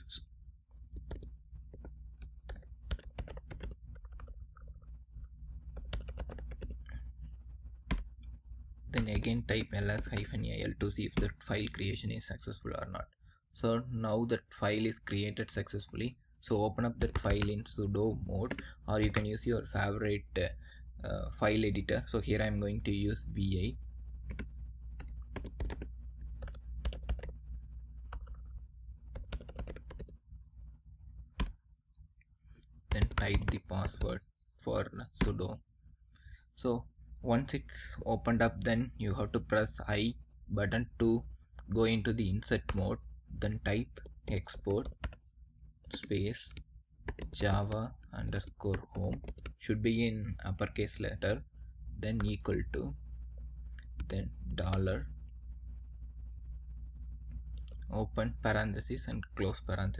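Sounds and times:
steady low hum: 0:00.0 - 0:59.9
keyboard typing clicks: 0:29.1 - 0:30.2, 0:32.9 - 0:34.2, 0:45.9 - 0:47.8.

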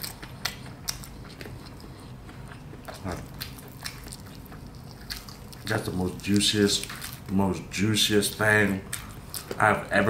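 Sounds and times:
wet chewing mouth smacks: 0:00.0 - 0:05.8.

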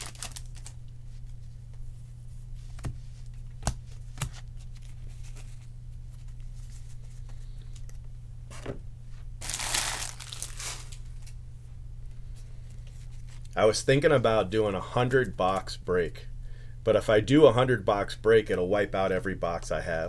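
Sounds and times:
foil wrapper crinkling: 0:00.0 - 0:00.8, 0:09.4 - 0:11.4
steady low hum: 0:00.0 - 0:20.0.

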